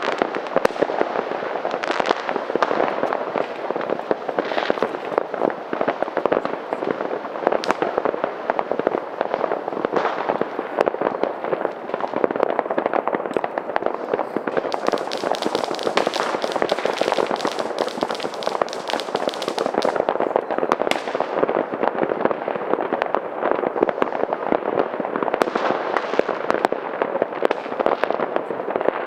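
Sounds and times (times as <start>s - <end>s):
sharp dense crackling: 0.0s - 22.0s
fireworks banging and popping: 0.0s - 29.0s.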